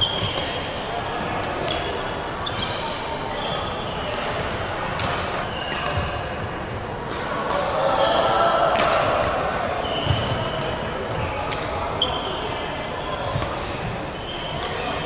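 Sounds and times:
sneakers squeaking on wooden floor: 0.0s - 6.2s, 9.8s - 10.6s, 12.0s - 15.0s
hall background noise: 0.0s - 8.4s.

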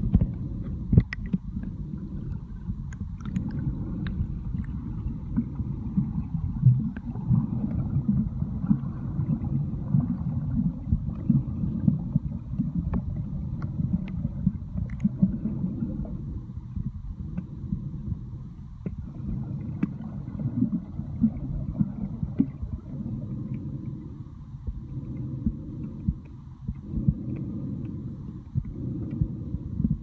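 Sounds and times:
muffled underwater rumble: 0.0s - 30.0s
faint clicks: 0.1s - 4.8s, 12.5s - 15.2s, 19.6s - 20.1s.

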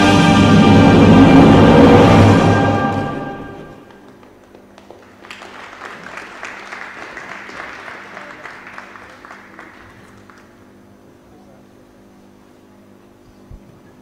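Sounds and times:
scattered applause: 3.8s - 10.9s.

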